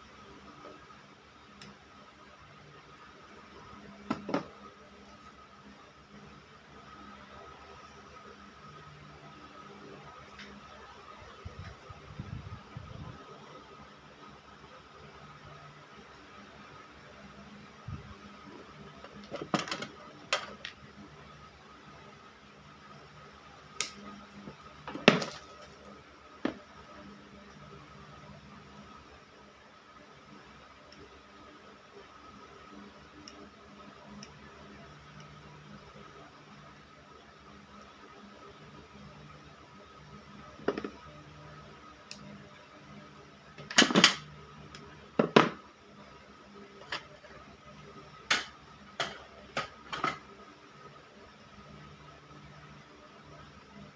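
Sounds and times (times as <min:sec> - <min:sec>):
knock on workbench: 0:04.1 - 0:04.5.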